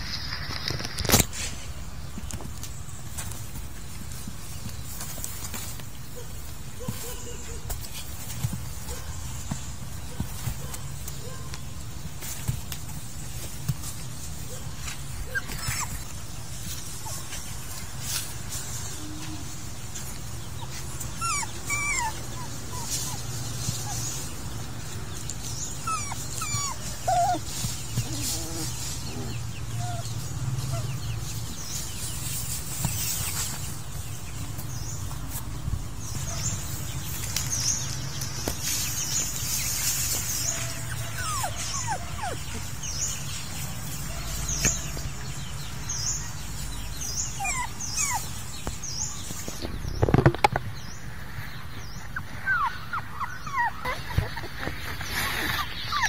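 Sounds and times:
puppies whimpering: 13.3s - 17.8s, 18.8s - 33.6s, 39.0s - 45.1s, 46.8s - 49.7s, 52.0s - 56.0s.

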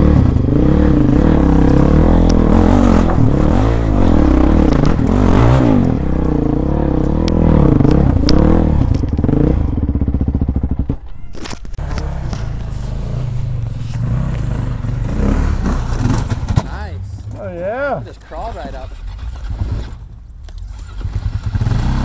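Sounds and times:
dirt bike engine revving: 0.0s - 11.0s, 11.8s - 16.7s, 20.7s - 22.0s.

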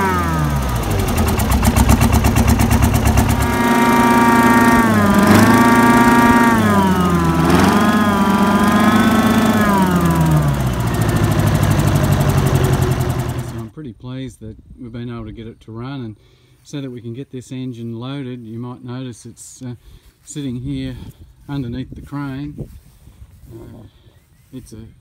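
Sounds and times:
diesel engine revving: 0.0s - 13.7s
high engine whine: 0.0s - 13.7s.

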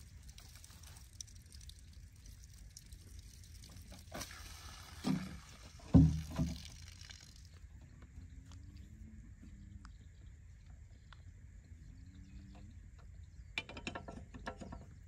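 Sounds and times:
water splash: 0.0s - 7.4s
plastic jerrycan thumping: 5.0s - 6.6s.

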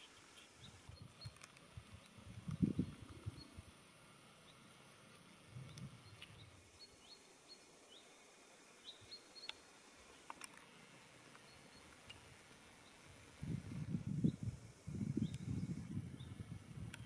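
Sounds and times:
faint high bird chirps: 2.5s - 3.6s, 8.8s - 10.2s, 11.4s - 12.2s.

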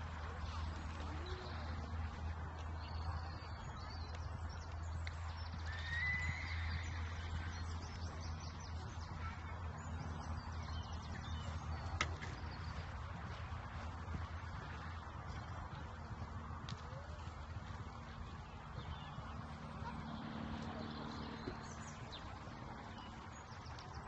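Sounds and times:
horse hoofbeats: 0.0s - 24.0s.

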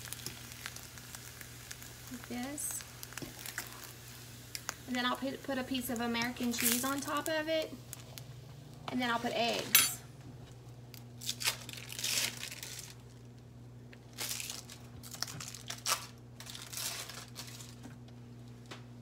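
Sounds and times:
low steady hum: 0.0s - 19.0s
plastic wrapper crinkling and tearing: 6.4s - 7.3s, 10.9s - 13.4s, 14.0s - 18.0s.

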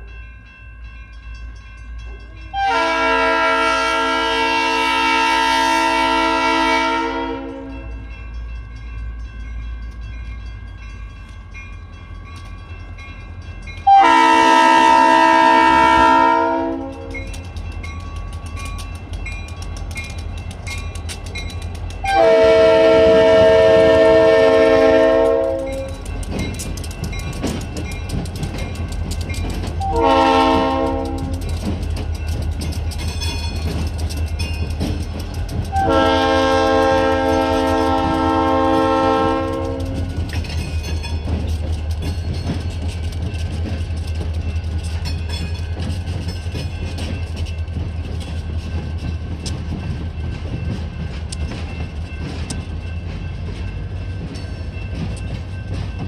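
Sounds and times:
locomotive air horn blasts: 2.5s - 7.8s, 13.9s - 17.2s, 22.0s - 25.9s, 29.8s - 31.4s, 35.7s - 40.0s.

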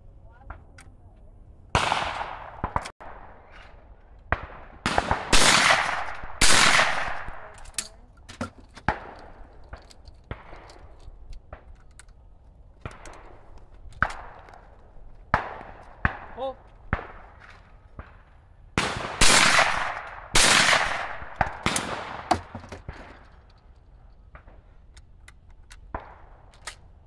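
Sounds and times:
shotgun shots with echo: 1.8s - 3.4s, 4.3s - 7.5s, 18.8s - 23.0s.

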